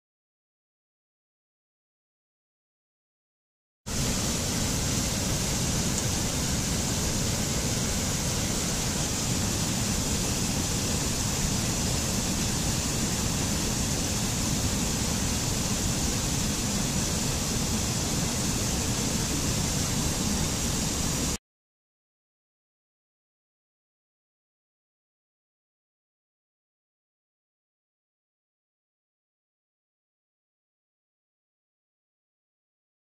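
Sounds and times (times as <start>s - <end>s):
mountain stream rushing over rocks: 3.9s - 21.4s.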